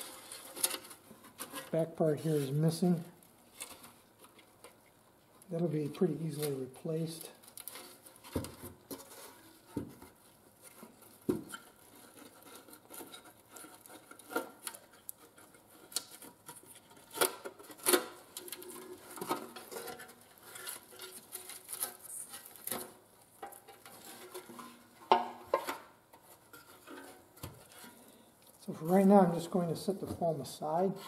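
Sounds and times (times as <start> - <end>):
scraping and rustling: 0.0 - 31.0.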